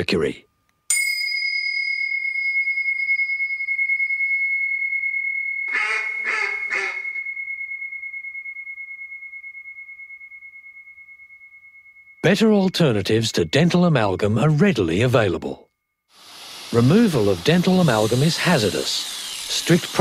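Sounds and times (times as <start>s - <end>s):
chime ringing: 0.9s - 16.0s, 16.7s - 20.0s
duck-like quacks: 5.7s - 7.0s.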